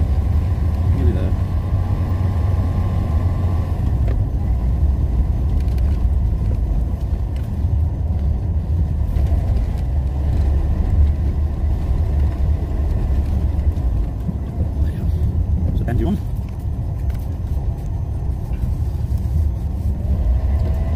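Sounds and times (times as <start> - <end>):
motorhome engine and road rumble: 0.0 - 20.9.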